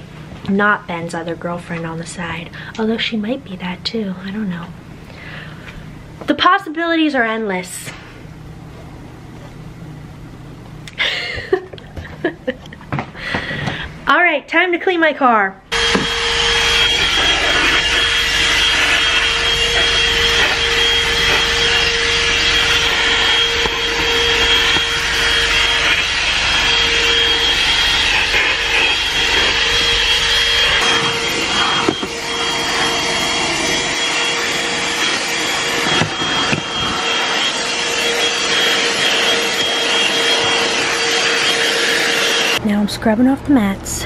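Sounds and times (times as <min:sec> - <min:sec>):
handheld vacuum cleaner running: 0:15.7 - 0:42.6.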